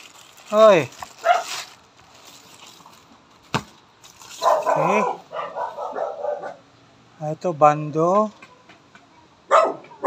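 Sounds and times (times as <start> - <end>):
dog barking: 1.2 - 1.5, 4.4 - 6.6, 9.5 - 10.0.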